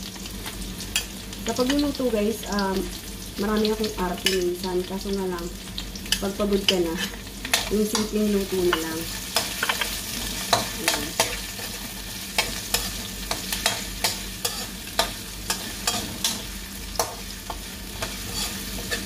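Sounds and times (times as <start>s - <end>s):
onions sizzling in hot oil: 0.0s - 19.0s
metal spatula scraping pan: 8.7s - 19.0s.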